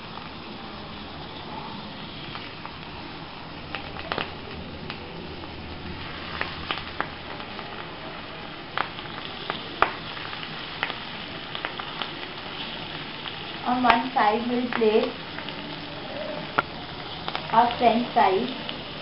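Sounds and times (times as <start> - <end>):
butter sizzling on hot plate: 0.0 - 19.0
sharp pops: 8.7 - 10.1.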